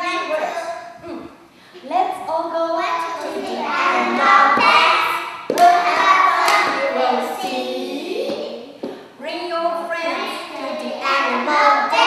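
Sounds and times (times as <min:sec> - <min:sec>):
woman and children singing: 0:02.5 - 0:08.7, 0:09.3 - 0:12.0
sharp clap: 0:04.6 - 0:06.9.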